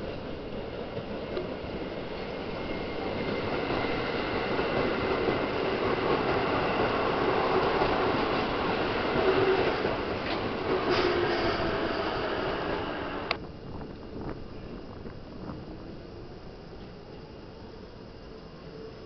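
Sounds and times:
electric train passing: 0.0s - 19.0s.

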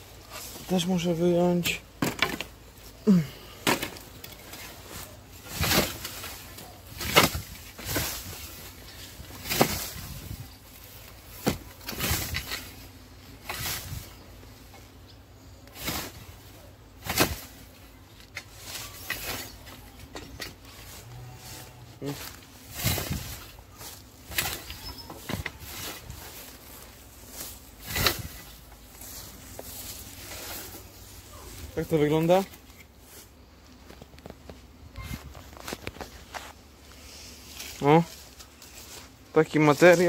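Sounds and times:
scythe swishing through grass: 4.5s - 12.8s, 13.4s - 14.2s, 15.7s - 33.3s, 35.2s - 39.1s.

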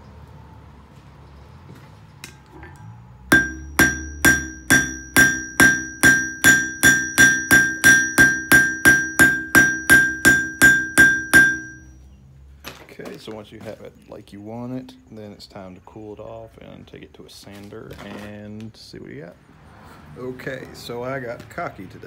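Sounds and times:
hammer striking metal on anvil: 3.3s - 12.0s.

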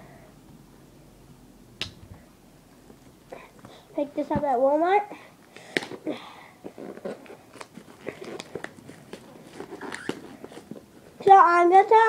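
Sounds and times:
plastic shrink wrap crinkling: 6.6s - 11.3s.

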